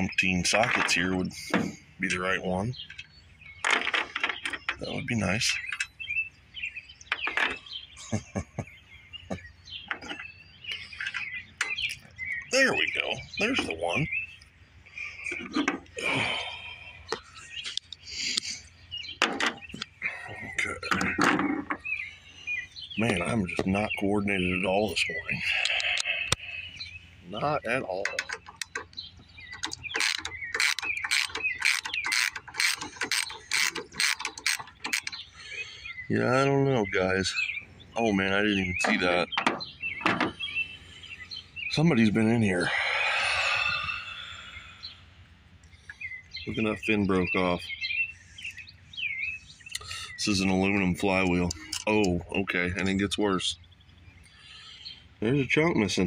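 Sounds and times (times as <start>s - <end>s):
birds chirping: 0.0s - 56.0s
ratchet wrench clicking: 29.7s - 35.1s.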